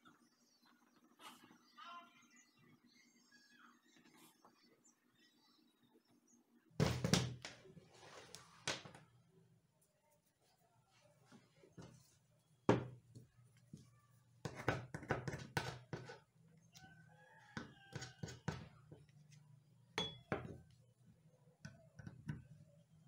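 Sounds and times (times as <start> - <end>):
hand tools knocking on wooden table: 12.7 - 13.0, 20.0 - 20.6.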